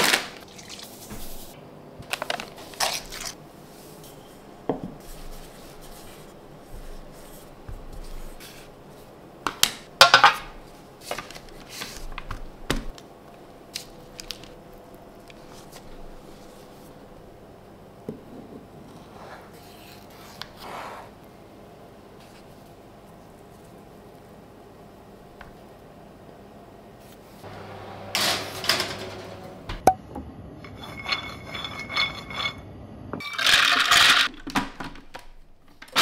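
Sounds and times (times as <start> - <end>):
hands brushing flour: 5.0 - 9.1.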